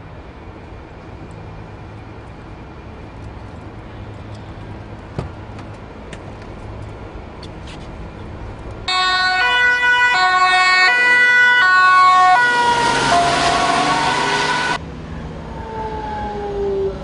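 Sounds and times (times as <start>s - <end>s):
quiet street noise: 0.0s - 17.0s
ambulance two-tone siren: 8.9s - 14.8s, 15.6s - 17.0s
vehicle engine and tyres passing: 12.0s - 17.0s.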